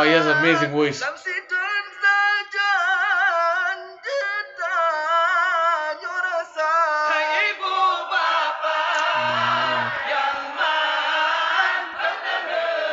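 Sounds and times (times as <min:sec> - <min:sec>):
man chanting into a microphone: 0:00.0 - 0:07.4, 0:09.0 - 0:10.1
group of voices chanting: 0:07.6 - 0:12.9.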